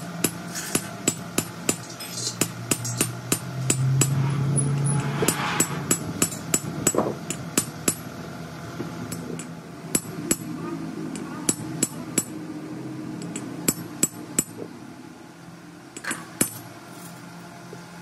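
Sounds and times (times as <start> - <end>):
hammer striking steel drift: 0.0 - 8.1.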